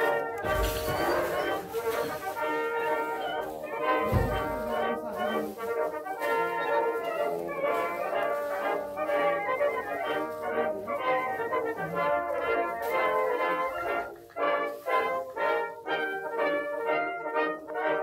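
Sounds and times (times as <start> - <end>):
orchestral brass music: 0.0 - 18.0.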